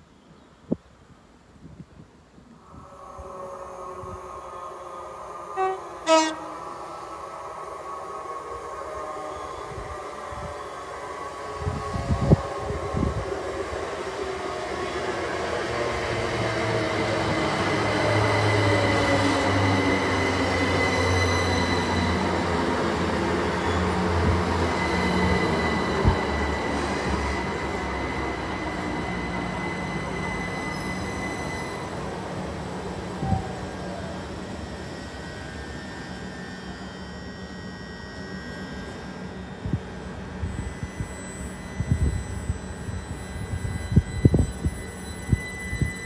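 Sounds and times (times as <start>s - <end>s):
train rumbling past: 2.6s - 46.0s
high wheel squeal: 16.3s - 46.0s.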